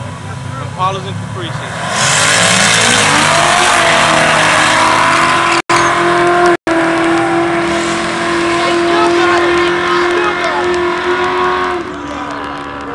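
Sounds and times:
engine revving hard: 1.3 - 12.9.

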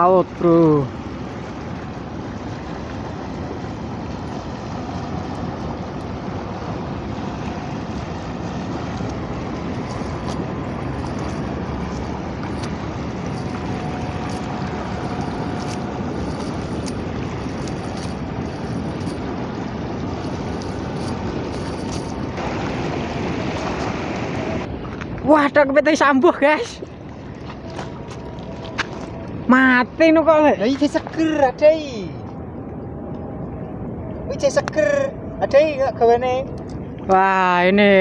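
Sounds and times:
small waves lapping: 0.0 - 34.4
wind: 0.0 - 38.0.

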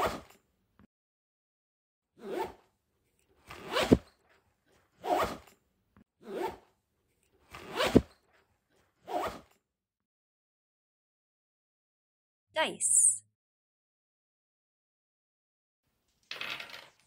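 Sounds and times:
zipper rasping: 2.2 - 2.8, 3.4 - 4.1, 4.7 - 5.6, 6.2 - 6.8, 7.4 - 9.6.

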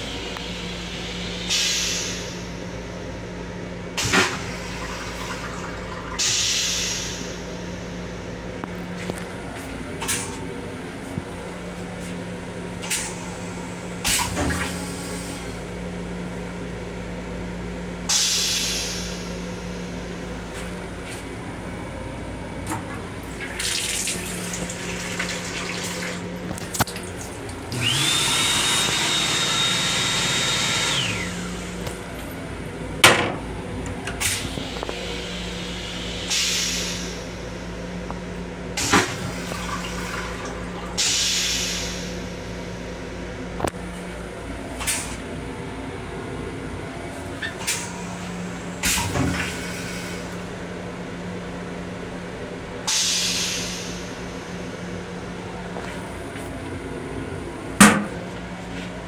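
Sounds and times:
steady low hum: 0.0 - 59.0
hand dryer whirring: 22.7 - 32.3.

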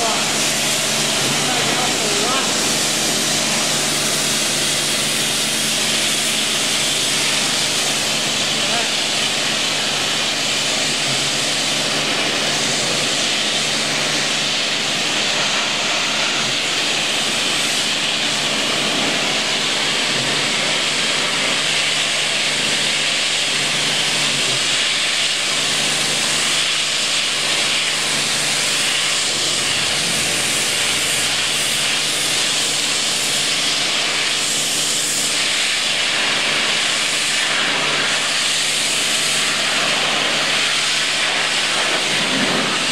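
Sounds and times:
pressure washer spraying metal: 0.0 - 42.9.

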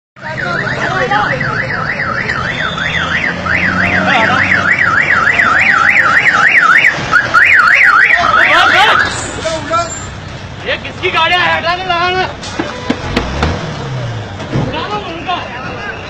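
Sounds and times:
electronic siren yelping: 0.4 - 9.1.

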